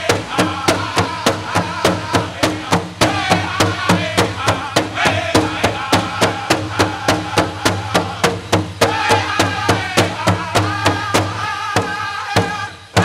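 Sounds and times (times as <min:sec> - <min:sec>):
big drum fast beat: 0:00.0 - 0:13.0
men singing: 0:00.0 - 0:13.0.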